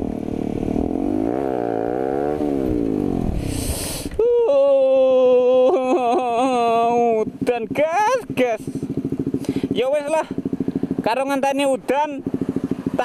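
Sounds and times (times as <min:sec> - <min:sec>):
motorcycle engine: 0:00.0 - 0:04.2, 0:06.2 - 0:13.0
brief hiss: 0:03.4 - 0:04.2.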